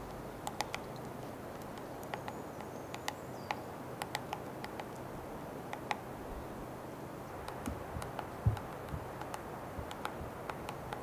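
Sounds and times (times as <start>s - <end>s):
woodpecker tapping on wood: 0.4s - 5.0s, 5.7s - 6.0s, 7.4s - 11.0s.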